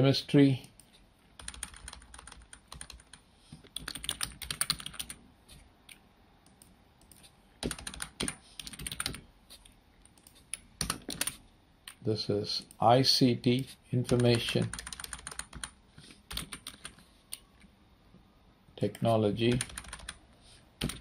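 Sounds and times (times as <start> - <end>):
typing on computer keyboard: 1.4 - 5.2, 5.9 - 9.2, 10.0 - 12.0, 14.1 - 17.0, 18.9 - 20.2, 20.8 - 21.0.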